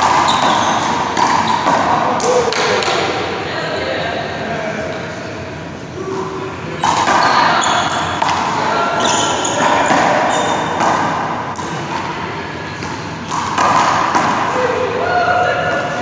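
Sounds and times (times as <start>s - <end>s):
sneakers squeaking on court floor: 0.0s - 1.8s, 6.8s - 11.0s.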